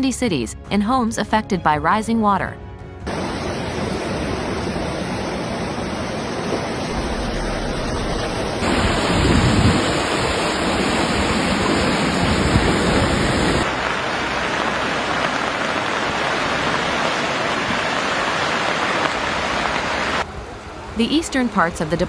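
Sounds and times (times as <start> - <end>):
floodwater rushing: 3.1 - 20.2.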